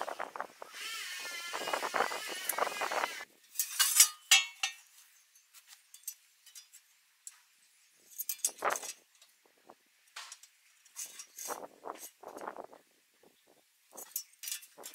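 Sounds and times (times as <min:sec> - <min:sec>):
steel clinking and clanking: 0:03.5 - 0:04.9, 0:08.1 - 0:09.0, 0:14.0 - 0:14.9.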